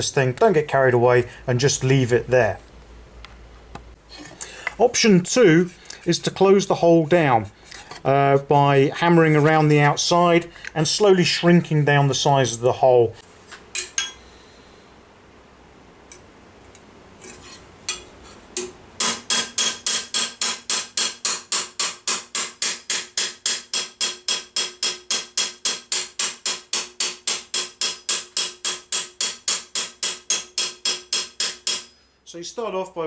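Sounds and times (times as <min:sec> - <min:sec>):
hammer striking sheet metal: 0:18.6 - 0:32.0.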